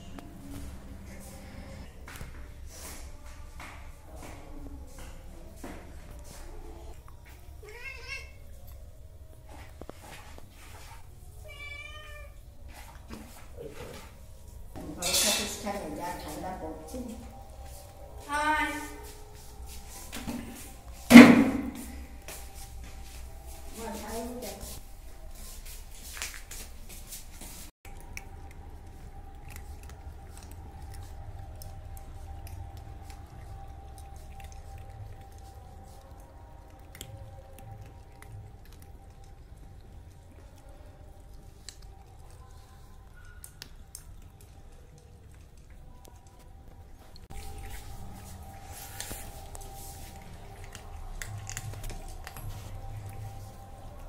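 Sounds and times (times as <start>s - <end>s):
faint background hum: 0.0s - 54.0s
cat meowing: 7.6s - 8.5s, 11.4s - 12.4s
cats chewing clicks: 27.8s - 46.8s, 49.0s - 54.0s.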